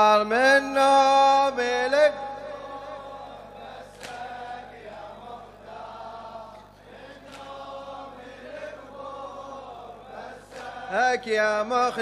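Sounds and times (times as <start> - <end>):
men chanting a lament: 0.0 - 12.0
sharp slap: 4.0 - 4.3.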